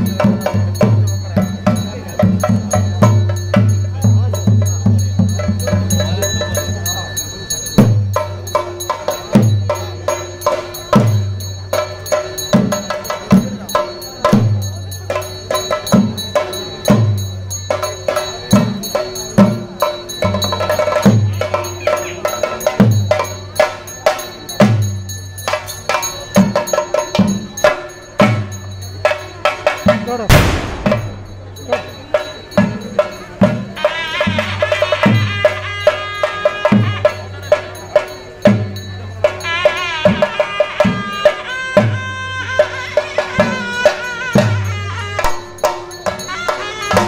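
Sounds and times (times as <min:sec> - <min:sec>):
drums beaten in fast rolls: 0:00.0 - 0:07.1, 0:26.3 - 0:33.7
ringing cymbals: 0:00.0 - 0:47.0
deep drum stroke: 0:30.3 - 0:31.6.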